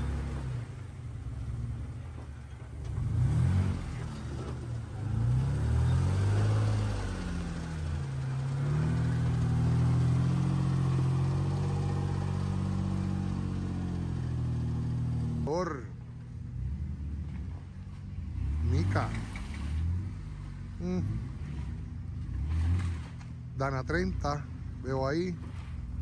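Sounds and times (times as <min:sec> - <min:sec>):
engine revving: 0:00.0 - 0:26.0.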